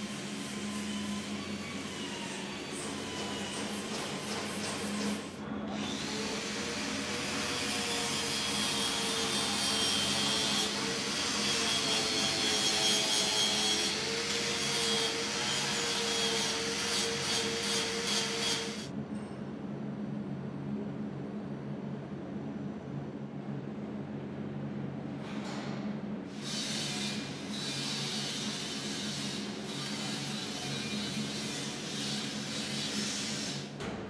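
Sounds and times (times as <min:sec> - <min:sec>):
angle grinder on metal: 0:07.6 - 0:18.9.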